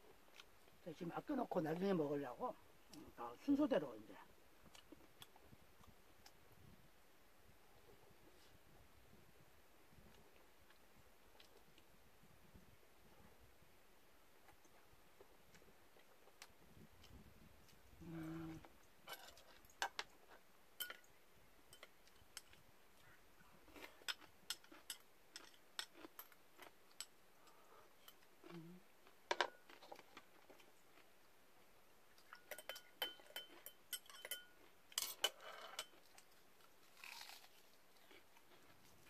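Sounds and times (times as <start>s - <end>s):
food chewing crunches: 21.8s - 39.0s
utensils tapping dishes: 32.3s - 35.9s.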